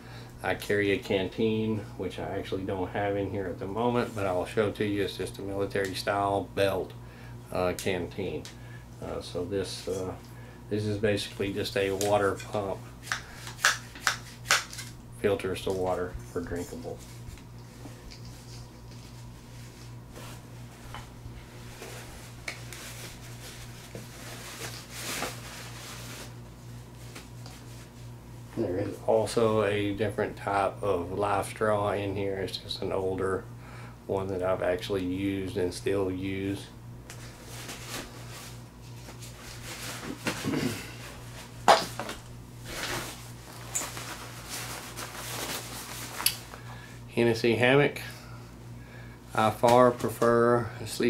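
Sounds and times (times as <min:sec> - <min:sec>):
steady low hum: 0:00.0 - 0:51.0
nylon pouches rustling: 0:42.6 - 0:46.6.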